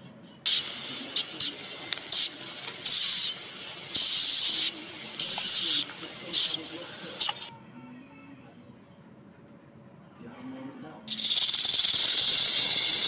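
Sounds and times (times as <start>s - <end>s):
hisses: 0.5s - 7.5s, 11.1s - 13.0s.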